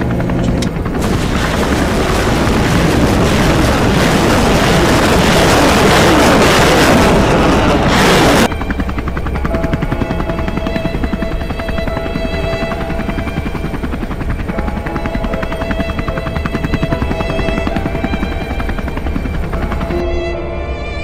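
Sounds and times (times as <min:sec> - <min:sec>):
steady engine hum: 0:00.0 - 0:21.0
large explosion blast: 0:01.0 - 0:08.5.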